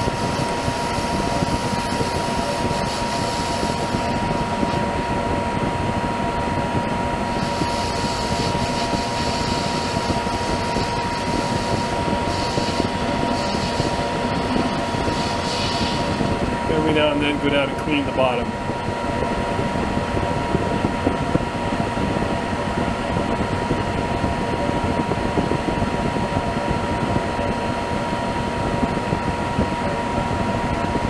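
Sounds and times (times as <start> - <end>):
lathe running with high whine: 0.0 - 31.0
metal cutting hiss: 10.8 - 16.2.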